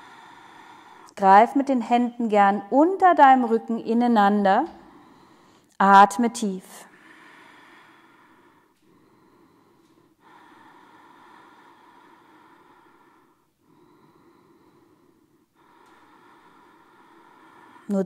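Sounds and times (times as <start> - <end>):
woman breathing slowly: 0.0 - 1.2, 4.7 - 5.8, 6.8 - 18.0.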